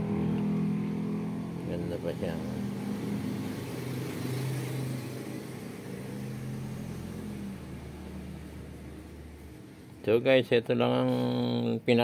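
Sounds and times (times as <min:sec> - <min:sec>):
engine humming: 0:00.0 - 0:10.0.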